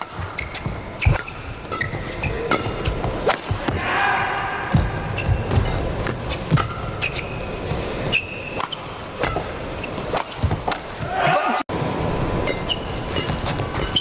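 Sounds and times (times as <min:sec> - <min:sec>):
shoes squeaking on court: 0:00.0 - 0:03.6, 0:05.0 - 0:10.8, 0:12.5 - 0:14.0.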